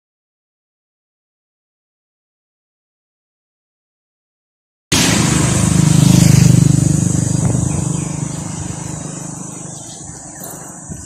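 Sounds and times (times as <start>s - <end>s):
vehicle engine passing: 4.9s - 11.0s.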